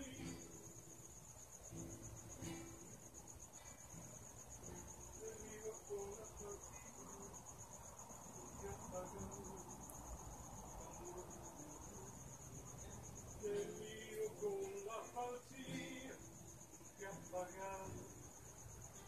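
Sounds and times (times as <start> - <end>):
cricket chirping: 0.0 - 19.0.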